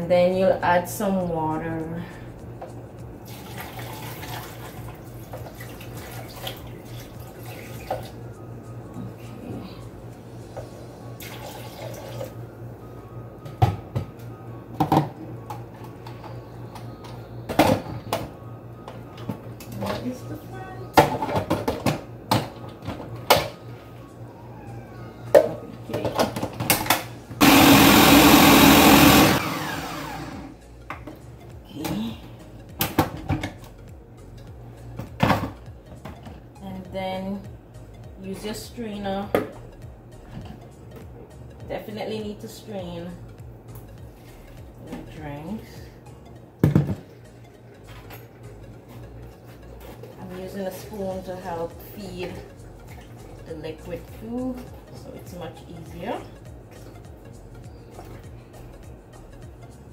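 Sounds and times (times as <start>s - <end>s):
blender motor running: 27.4s - 30.6s.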